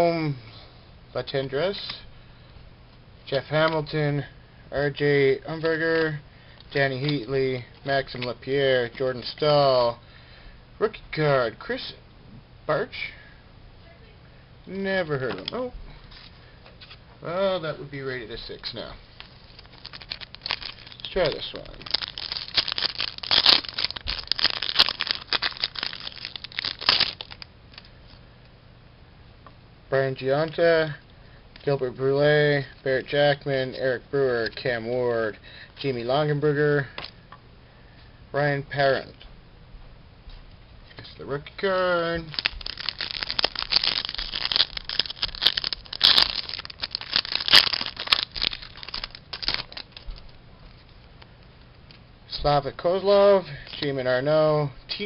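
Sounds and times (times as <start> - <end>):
foil wrapper tearing and crinkling: 19.2 - 27.9, 42.2 - 50.4.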